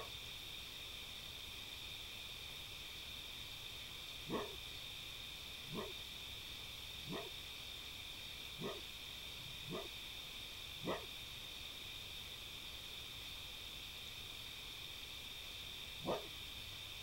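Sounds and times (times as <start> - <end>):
fox barking: 4.3 - 4.6, 5.7 - 6.0, 7.1 - 7.3, 8.6 - 8.8, 9.6 - 9.9, 10.8 - 11.1, 16.0 - 16.3.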